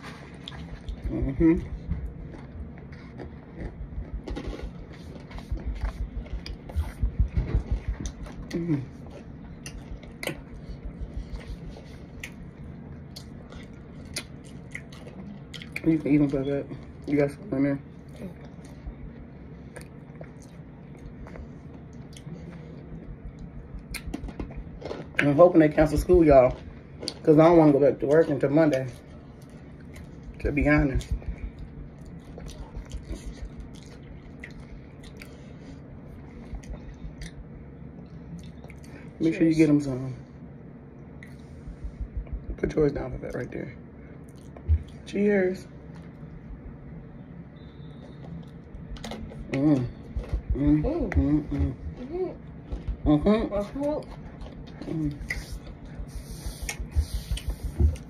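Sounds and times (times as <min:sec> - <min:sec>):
chewing with sharp crackles: 0:00.0 - 0:17.4, 0:18.0 - 0:27.4, 0:28.0 - 0:39.2, 0:44.2 - 0:45.1
low steady background noise: 0:00.0 - 0:58.0.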